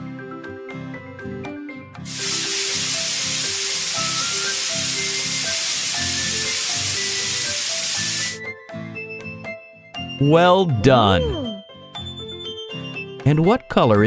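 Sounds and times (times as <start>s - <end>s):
light background music: 0.0s - 14.0s
spray paint hiss: 2.1s - 8.4s.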